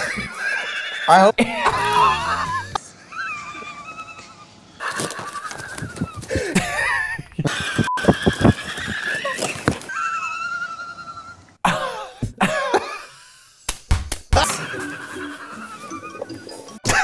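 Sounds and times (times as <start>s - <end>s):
person squealing laughter: 0.0s - 12.2s.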